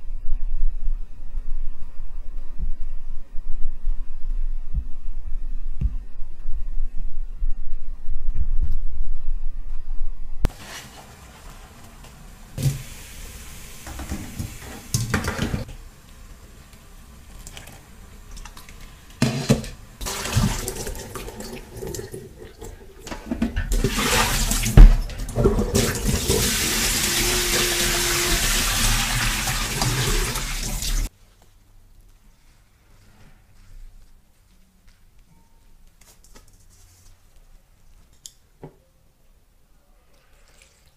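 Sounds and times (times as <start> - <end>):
tap water running into bowl: 20.0 - 31.1.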